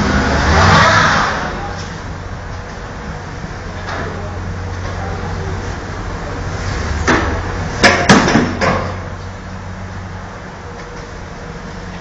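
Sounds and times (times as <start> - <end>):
sharp knocks: 7.1 - 9.0.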